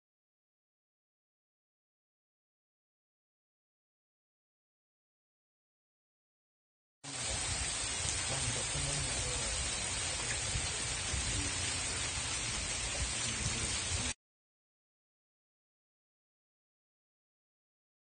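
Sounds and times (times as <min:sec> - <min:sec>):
heavy rain pouring: 0:07.1 - 0:14.2.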